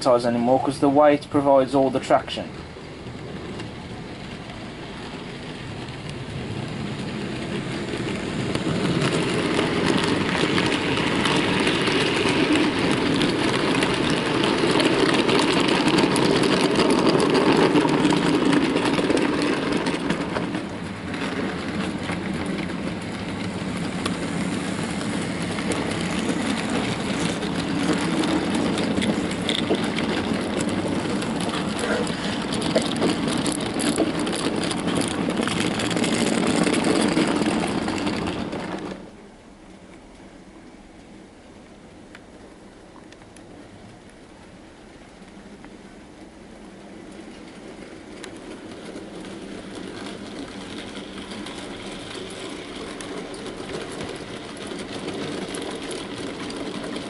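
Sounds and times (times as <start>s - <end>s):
model train rumbling over track: 0.0s - 57.0s.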